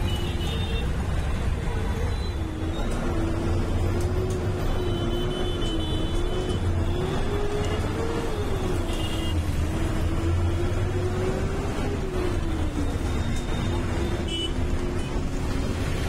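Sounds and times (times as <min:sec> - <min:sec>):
bus engine droning with whine: 0:00.0 - 0:16.0.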